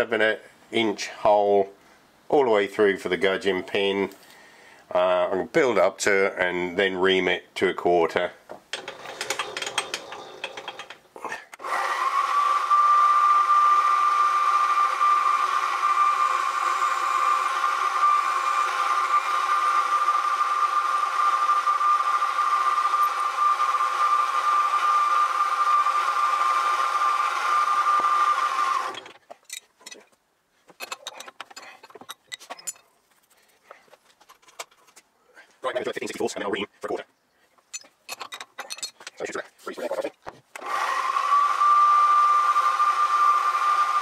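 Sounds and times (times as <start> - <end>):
hand tools clinking: 8.7 - 11.1, 29.0 - 32.9, 37.6 - 39.3
drill spindle motor whining: 11.6 - 29.2, 40.6 - 44.0.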